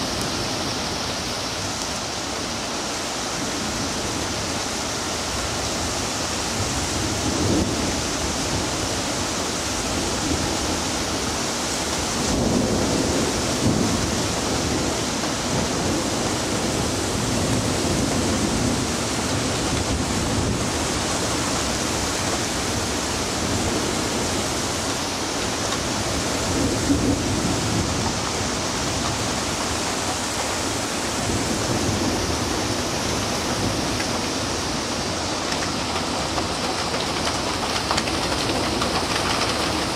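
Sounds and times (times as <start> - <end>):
heavy rain falling: 0.0 - 39.9
thunder rumbling: 12.0 - 24.4, 25.0 - 39.9.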